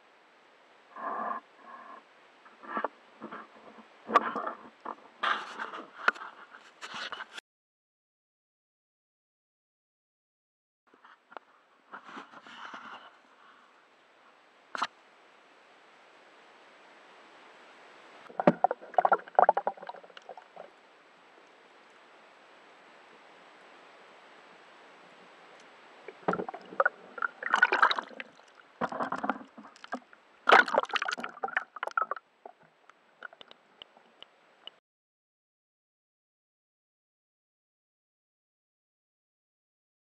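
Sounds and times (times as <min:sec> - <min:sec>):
faint steady hiss: 0:00.0 - 0:07.4, 0:10.9 - 0:34.8
water sloshing and splashing: 0:18.3 - 0:20.8, 0:26.0 - 0:34.2.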